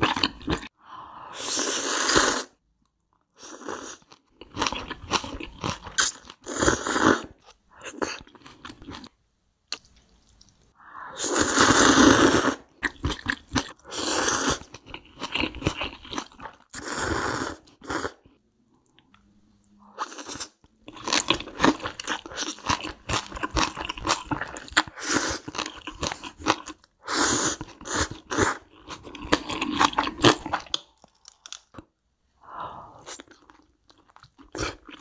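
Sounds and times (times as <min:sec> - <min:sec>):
wet chewing and crunching: 0:04.0 - 0:06.4, 0:12.8 - 0:13.9, 0:14.6 - 0:16.7, 0:20.8 - 0:27.0, 0:27.6 - 0:31.9, 0:33.1 - 0:35.0.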